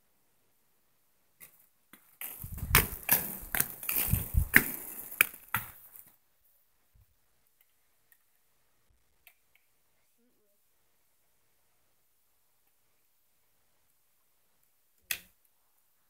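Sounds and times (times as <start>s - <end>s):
rumbling handling noise: 2.2s - 5.7s.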